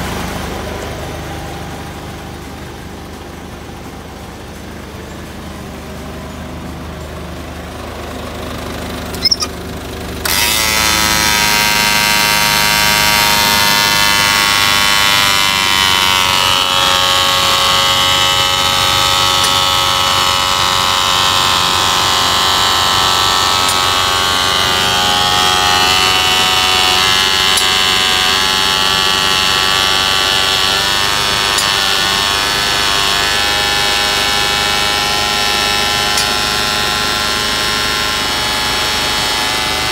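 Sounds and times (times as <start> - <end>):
diesel truck engine idling: 0.0 - 10.4.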